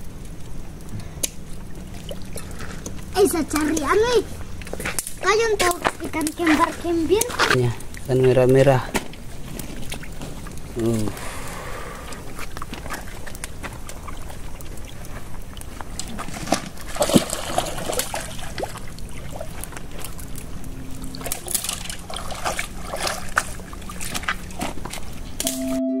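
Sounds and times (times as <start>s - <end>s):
small waves lapping on pebbles: 1.3s - 25.4s
pebbles crunching underfoot: 1.7s - 10.9s, 22.7s - 25.4s.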